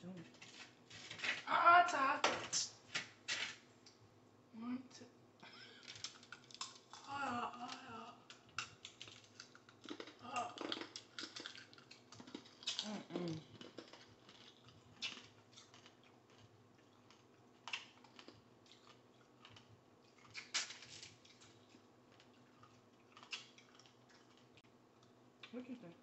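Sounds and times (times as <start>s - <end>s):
quiet chewing: 5.5s - 26.0s
candy shell crunching: 5.8s - 24.6s.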